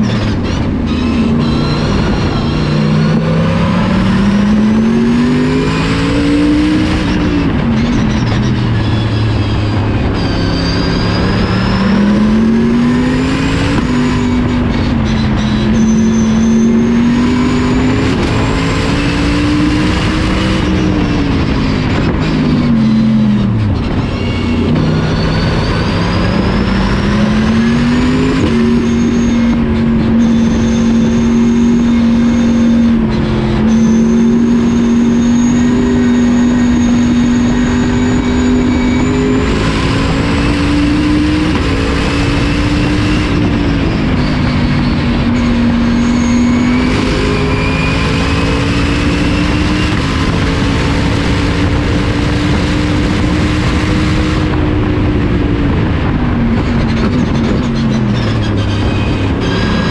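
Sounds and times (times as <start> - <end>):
race car engine at full throttle: 0.0 - 59.9
road and wind noise: 0.0 - 59.9.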